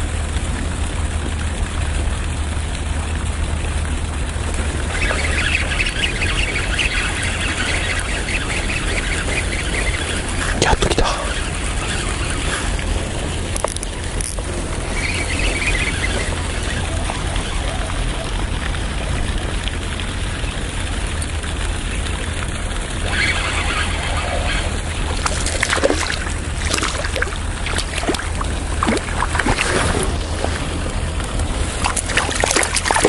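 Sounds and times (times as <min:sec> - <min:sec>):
small water splashes: 0:00.0 - 0:33.0
wind rumble on microphone: 0:00.0 - 0:33.0
fishing reel clicking: 0:13.5 - 0:16.4.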